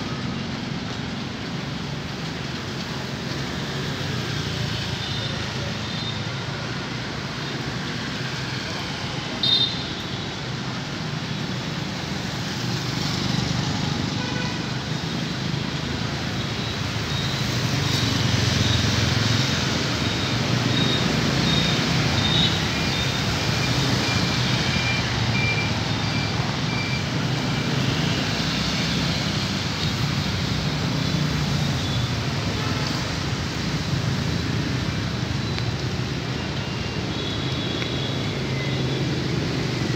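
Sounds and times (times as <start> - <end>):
traffic hiss: 0.0 - 39.9
motorbikes passing: 15.0 - 39.9.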